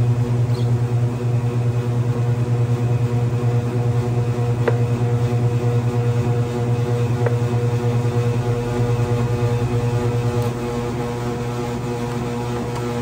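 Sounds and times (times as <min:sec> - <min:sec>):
electric motor hum: 0:03.1 - 0:13.0.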